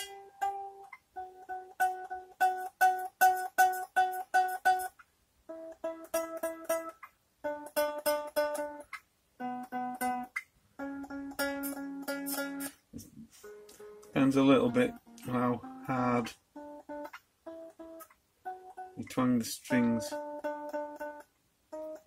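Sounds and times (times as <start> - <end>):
electric guitar string plucked: 0.0 - 4.9, 5.5 - 22.0.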